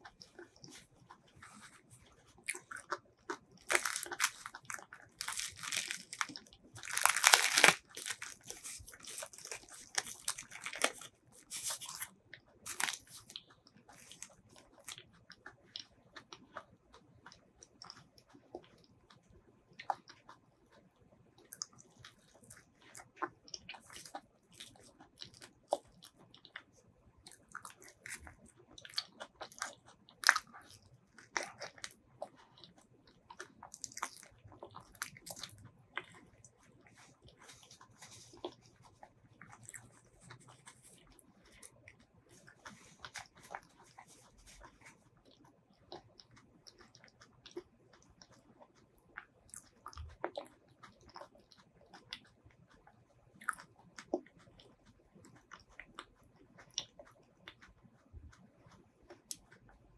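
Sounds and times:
biting and wet chewing: 0.0s - 59.9s
fingers pulling fruit pulp: 0.1s - 15.0s.

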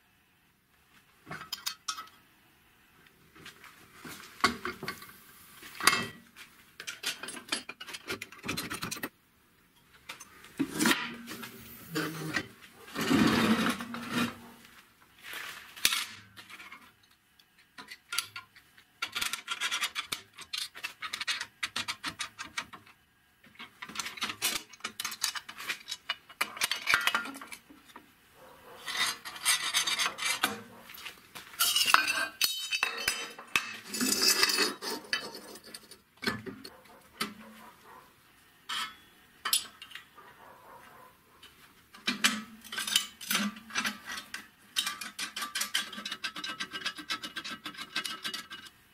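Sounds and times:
metal clinking and scraping: 4.1s - 9.1s, 9.8s - 14.6s, 23.6s - 38.1s, 38.7s - 48.8s.

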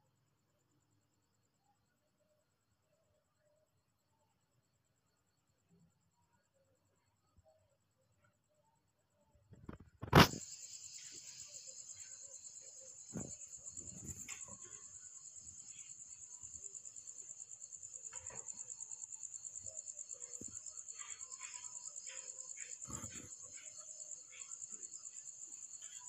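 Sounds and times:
cricket trilling: 9.5s - 26.0s.

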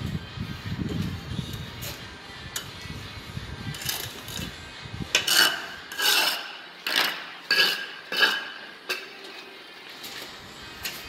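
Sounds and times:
trowel scraping wet mortar: 5.2s - 8.8s.

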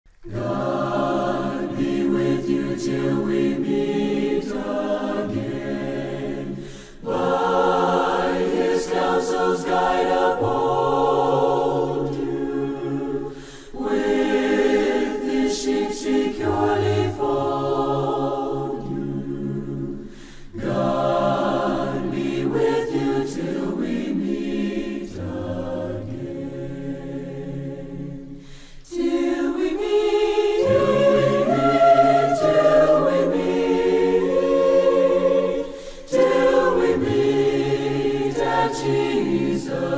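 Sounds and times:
choir singing a hymn: 0.2s - 39.9s.

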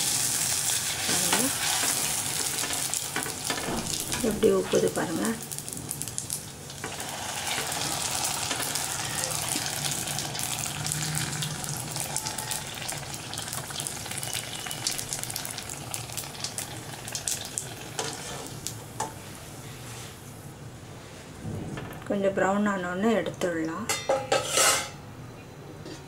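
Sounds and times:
dough sizzling in hot oil: 0.0s - 19.1s.

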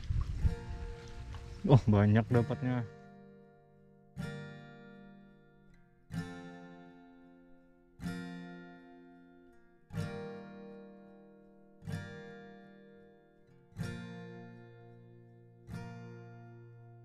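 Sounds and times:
acoustic guitar chords strummed: 0.0s - 17.0s.

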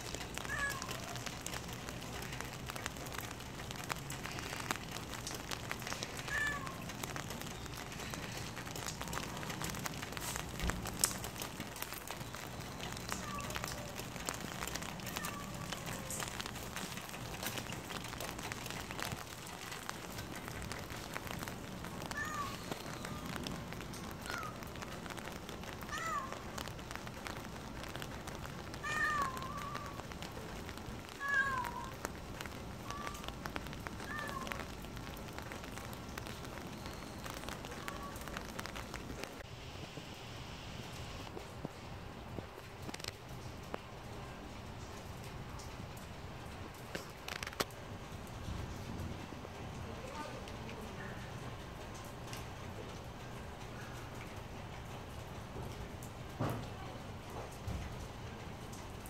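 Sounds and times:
rain hissing: 0.0s - 59.0s
cat meowing: 0.3s - 1.4s, 6.1s - 6.9s, 12.9s - 16.4s, 22.0s - 23.4s, 24.0s - 24.7s, 25.8s - 26.5s, 28.7s - 30.0s, 31.1s - 32.0s, 32.8s - 33.3s, 34.0s - 34.7s, 37.6s - 38.4s.

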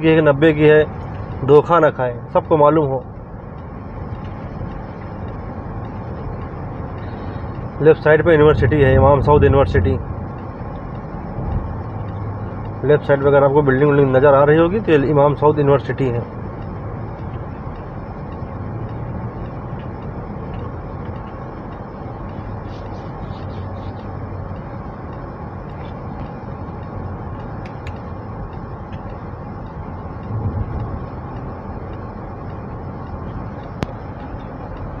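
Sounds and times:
car road and engine noise: 0.0s - 35.0s
low rumble: 8.0s - 12.4s, 30.1s - 32.2s.

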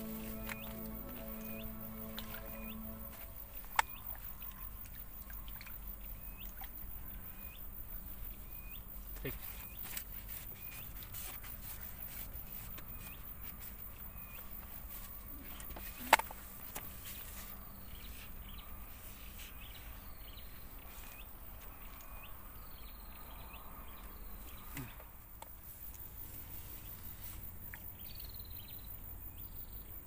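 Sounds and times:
low steady hum: 0.0s - 6.2s.

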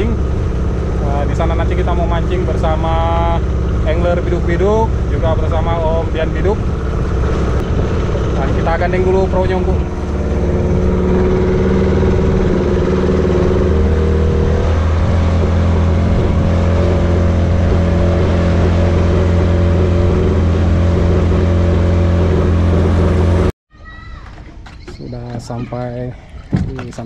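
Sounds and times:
outboard motor running: 0.0s - 23.5s.

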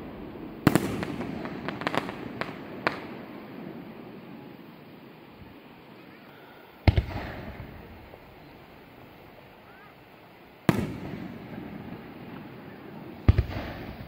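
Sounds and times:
firework shells booming with echo: 0.0s - 4.6s, 6.8s - 9.6s, 10.6s - 14.0s.

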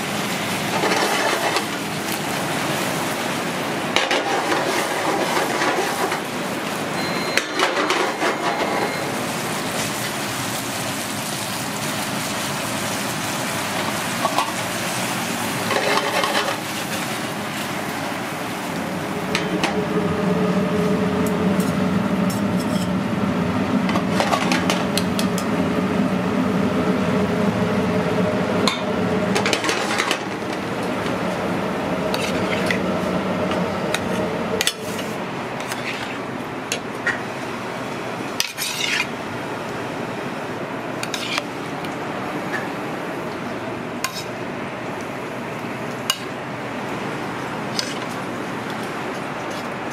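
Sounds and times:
metal spoon scraping pan: 32.1s - 32.8s, 35.6s - 36.2s, 38.4s - 39.1s, 41.0s - 41.5s.

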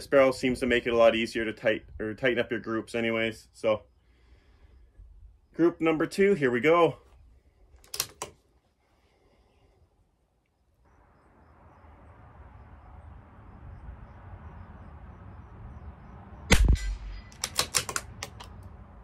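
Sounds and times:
rifle bolt metallic clicks: 7.8s - 8.4s, 16.8s - 18.7s
rifle shot: 16.5s - 17.8s.

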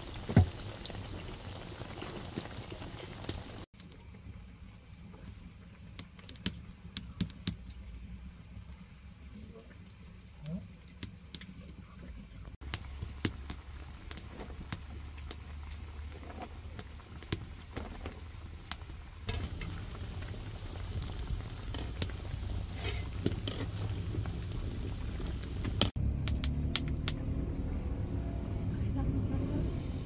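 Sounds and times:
oil sizzling around frying patties: 0.0s - 3.7s, 12.5s - 27.1s
sharp pops and crackles: 5.2s - 7.8s, 10.4s - 11.8s, 12.6s - 27.2s.

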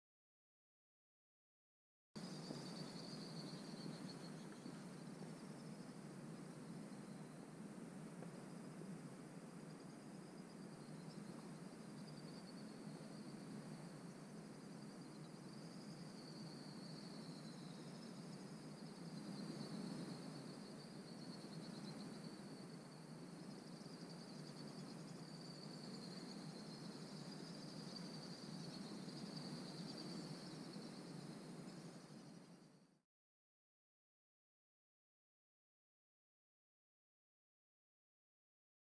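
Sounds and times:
insect chorus buzzing: 2.2s - 33.0s.

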